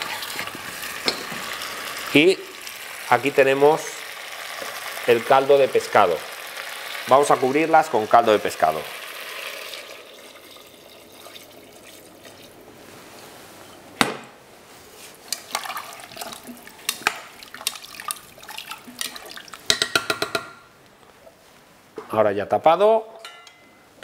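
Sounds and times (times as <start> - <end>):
utensil clinking in pot: 0.0 - 1.5
liquid pouring and splashing: 0.0 - 3.1, 8.3 - 13.3, 15.4 - 19.7
faint steady hiss: 0.0 - 24.0.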